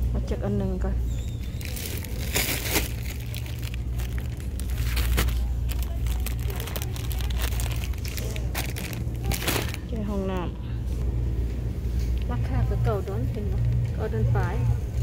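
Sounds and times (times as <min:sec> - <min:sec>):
steady low rumble: 0:00.0 - 0:15.0
plastic wrap crinkling: 0:01.3 - 0:09.9.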